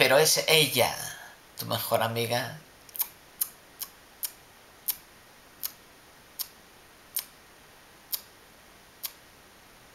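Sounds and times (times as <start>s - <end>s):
faint room hiss: 0.0s - 9.9s
sharp high-pitched clicks: 2.9s - 5.8s, 6.4s - 7.4s, 8.1s - 8.4s, 9.0s - 9.2s.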